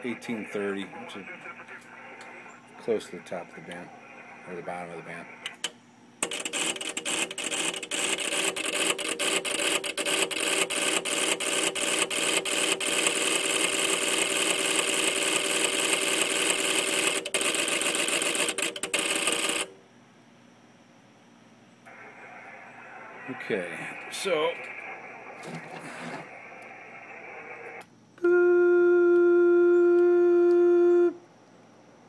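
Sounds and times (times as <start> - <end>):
relays clicking rapidly: 5.4 - 19.7.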